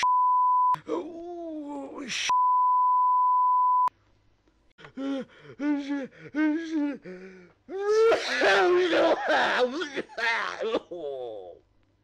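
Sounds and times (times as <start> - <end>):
high pure beep tone: 0.0 - 0.8, 2.3 - 3.9
man groaning: 4.9 - 11.6.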